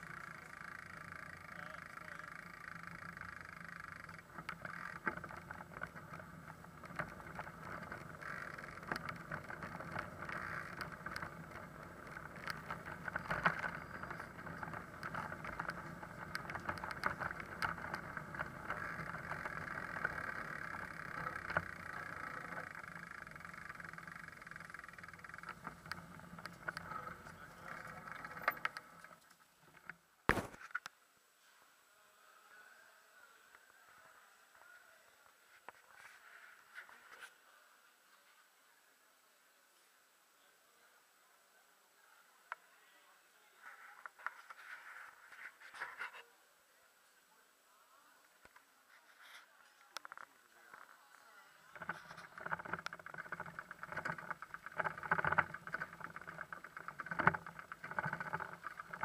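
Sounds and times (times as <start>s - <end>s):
bicycle rattling over cobblestones: 0.0s - 30.0s, 51.7s - 59.0s.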